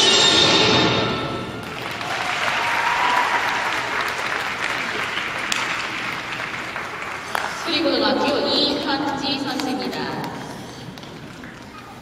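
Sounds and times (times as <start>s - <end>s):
audience applauding: 1.6s - 7.7s.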